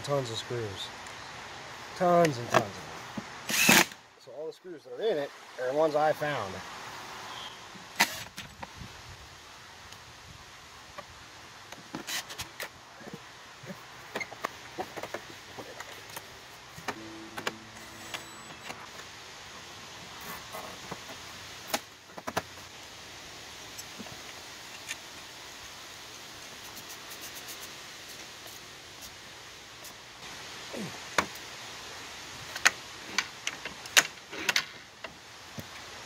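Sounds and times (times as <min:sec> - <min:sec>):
cordless drill driving screws: 0:03.5 - 0:04.0.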